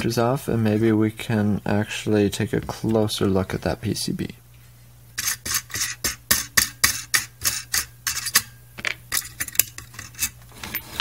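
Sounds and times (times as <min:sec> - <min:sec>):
wrench clinking and scraping on nut: 0:05.2 - 0:11.0.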